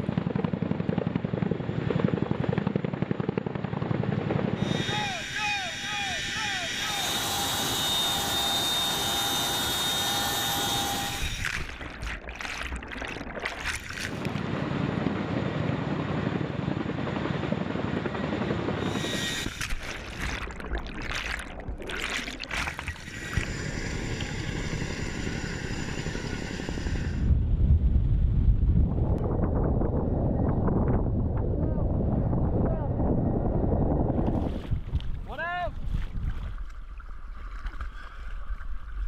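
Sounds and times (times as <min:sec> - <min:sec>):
helicopter rotors and engines: 0:00.0 - 0:12.0, 0:14.1 - 0:20.7, 0:22.5 - 0:34.2
gusty wind: 0:13.9 - 0:20.9, 0:23.0 - 0:36.6.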